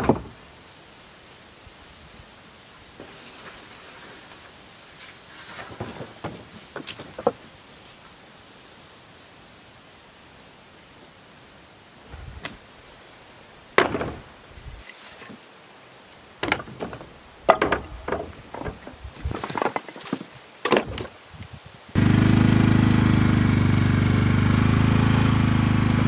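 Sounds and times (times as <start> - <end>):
hard objects knocking and clattering: 16.4 - 21.1.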